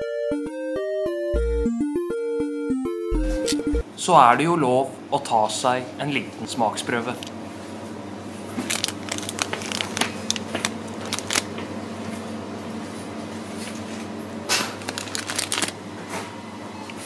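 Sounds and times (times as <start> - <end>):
plastic wrapper crinkling: 8.5 - 11.6, 14.6 - 15.8.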